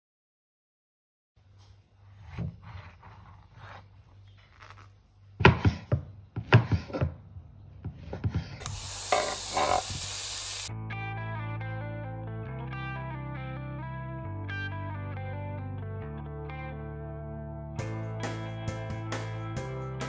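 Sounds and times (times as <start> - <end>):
knife slicing fruit: 2.0 - 7.2
sizzling in frying pan: 8.6 - 10.7.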